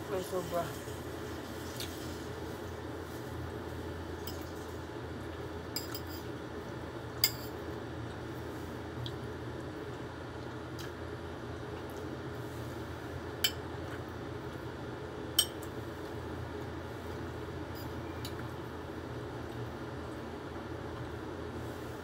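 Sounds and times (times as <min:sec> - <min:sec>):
steady low hum: 0:00.0 - 0:22.0
metal spoon clinking against dish: 0:05.8 - 0:06.2, 0:07.2 - 0:07.5.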